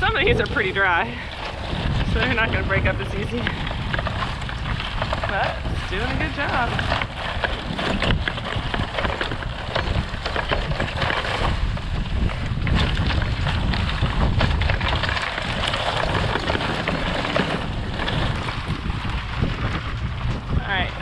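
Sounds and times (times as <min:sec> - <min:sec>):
fence drag scraping and rattling: 0:00.0 - 0:21.0
wind rumble on microphone: 0:00.0 - 0:21.0.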